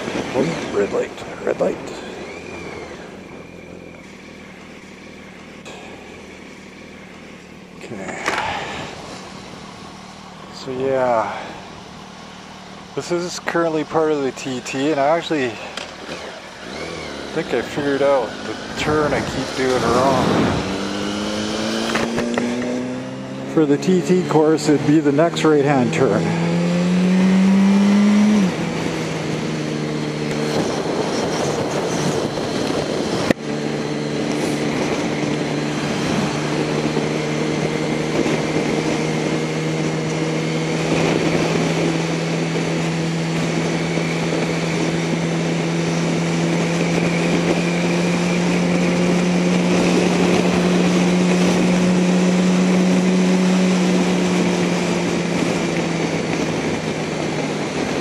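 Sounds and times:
motorcycle engine cruising: 0.0s - 58.0s
wind rush: 18.2s - 23.4s, 26.0s - 58.0s.

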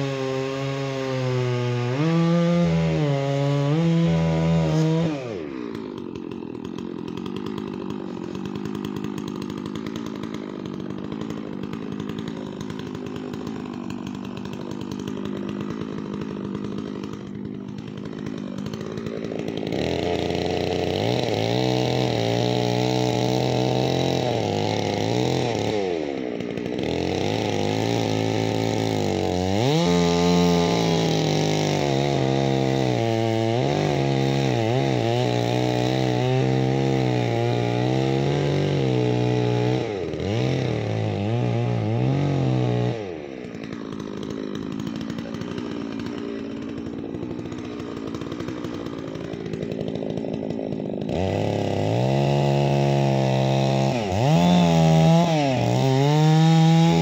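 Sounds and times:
chainsaw revving and idling: 0.0s - 57.0s.

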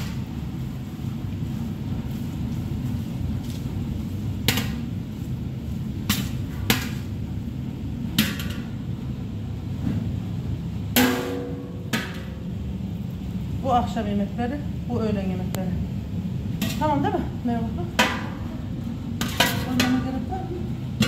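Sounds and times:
steady low hum: 0.0s - 21.0s
metal spoon clanking against pan: 19.2s - 20.3s.

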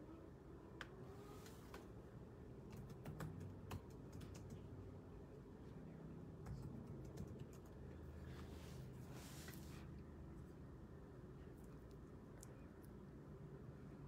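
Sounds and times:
keyboard typing: 2.7s - 4.7s, 6.4s - 7.8s.

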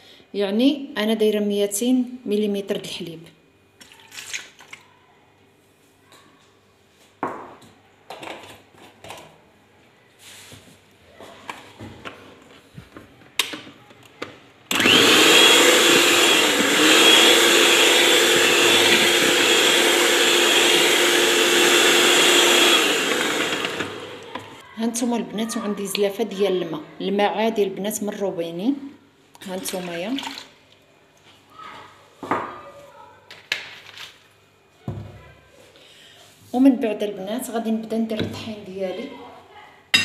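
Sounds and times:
electric hand mixer whirring: 14.7s - 24.6s.

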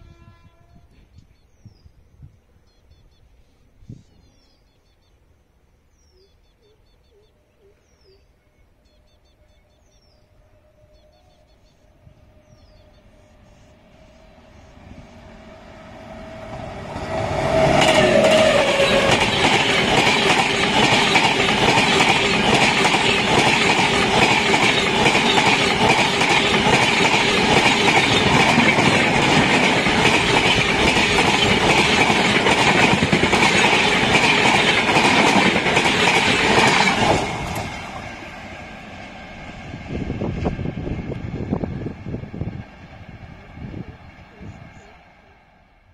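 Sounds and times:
train passing at speed: 10.2s - 45.9s
train wheel clatter: 16.4s - 38.0s.

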